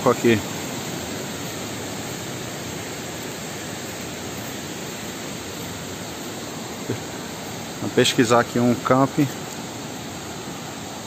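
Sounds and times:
stream rushing over rapids: 0.0 - 11.0.

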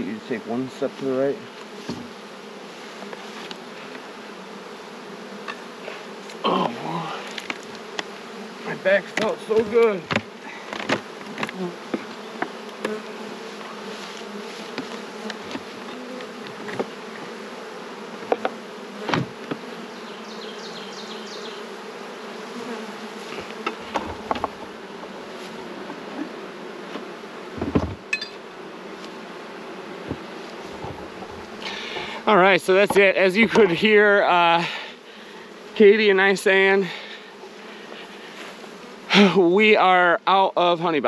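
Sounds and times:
honeybees humming: 0.0 - 41.0
knocks on wooden hive boxes: 1.6 - 2.3, 9.0 - 13.8, 14.6 - 17.4, 18.1 - 19.8, 23.3 - 26.2, 26.8 - 28.5, 30.0 - 33.8.

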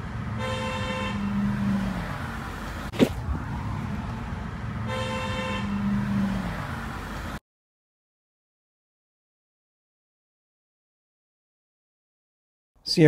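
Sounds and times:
passing street traffic: 0.0 - 7.4
car horn honking: 0.2 - 2.2, 4.7 - 6.7.

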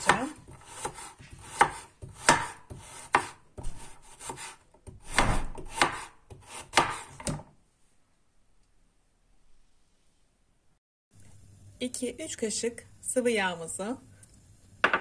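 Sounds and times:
knife slicing carrots on board: 0.0 - 7.3.

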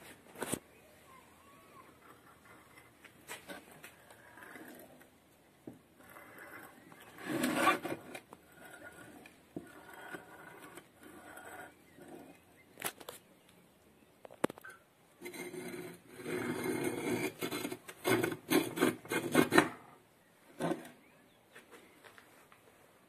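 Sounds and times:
metal scrape: 6.0 - 12.3, 15.2 - 20.0.

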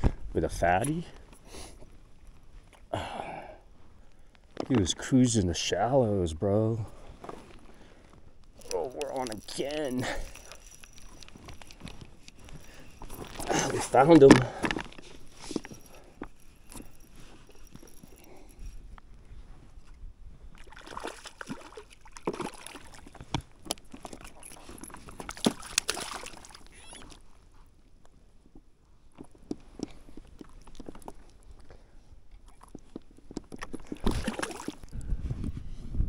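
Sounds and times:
water sloshing and splashing: 20.5 - 27.2, 32.6 - 35.0.

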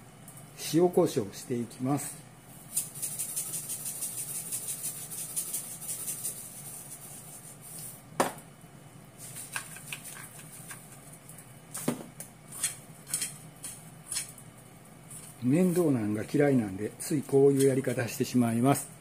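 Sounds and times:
shaker can rattling: 2.7 - 7.9.

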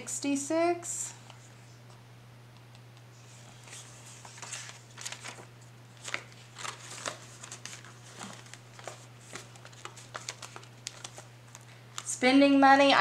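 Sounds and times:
banknotes and plastic rustling: 3.4 - 12.2.

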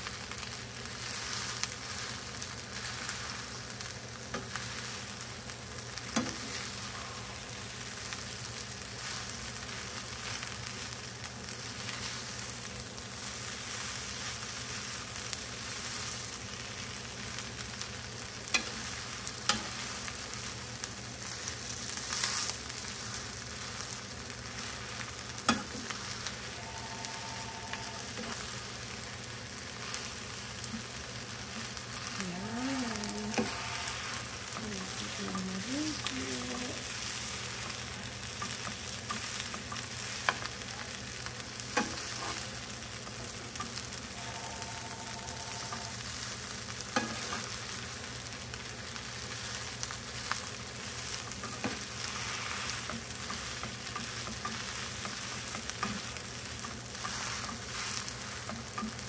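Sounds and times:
food sizzling in a skillet: 0.0 - 59.0.

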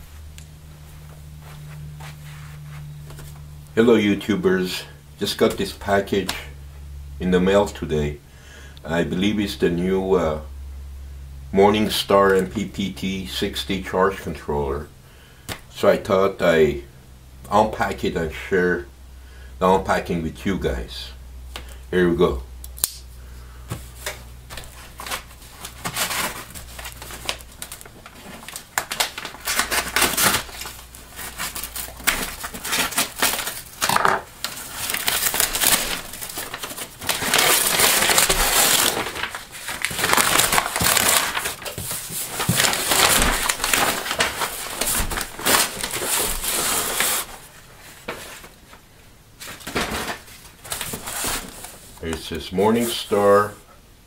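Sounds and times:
cardboard rustling and scraping: 23.7 - 48.8, 49.4 - 52.0
cardboard tearing: 24.0 - 47.5, 49.5 - 51.8.

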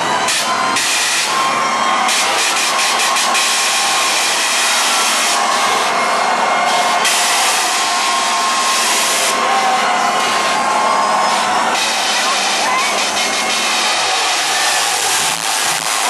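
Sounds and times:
dance club music and crowd: 0.0 - 16.0.

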